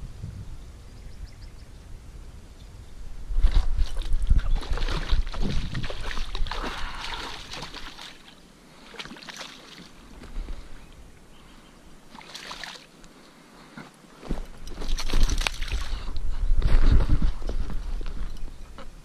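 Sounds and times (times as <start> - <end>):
fish thrashing and splashing in water: 3.6 - 9.9, 12.1 - 12.9, 14.8 - 16.0.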